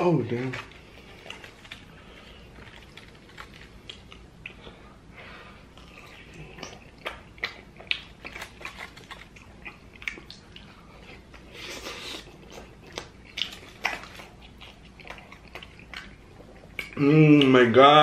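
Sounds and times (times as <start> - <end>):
man chewing food: 0.0 - 17.8.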